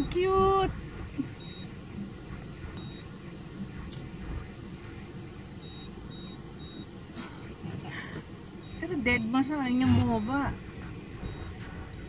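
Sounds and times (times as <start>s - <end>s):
car engine idling: 0.0s - 12.0s
short electronic beeps: 2.8s - 3.0s, 5.6s - 6.9s, 8.6s - 10.6s, 11.2s - 12.0s.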